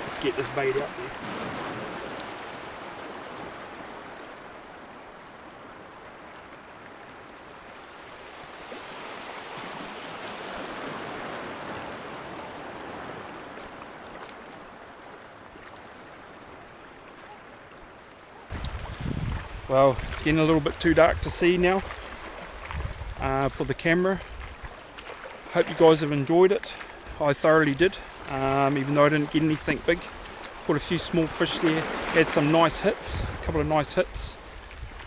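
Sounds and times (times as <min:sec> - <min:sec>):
small waves washing over rock: 0:00.0 - 0:04.2.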